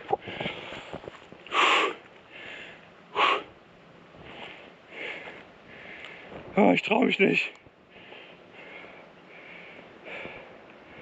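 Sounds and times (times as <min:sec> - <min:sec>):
man breathing hard: 0:00.2 - 0:03.5, 0:04.2 - 0:06.4, 0:07.8 - 0:11.0
sharp exhalations: 0:01.5 - 0:03.5.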